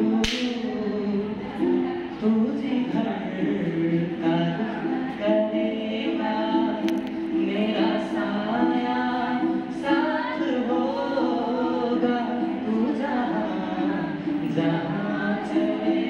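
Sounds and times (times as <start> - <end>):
person singing: 0.0 - 16.0.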